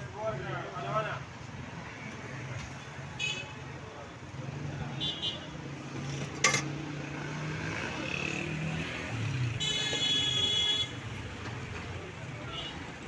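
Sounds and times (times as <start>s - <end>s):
street traffic: 0.0s - 13.0s
vehicle horn: 9.6s - 11.0s.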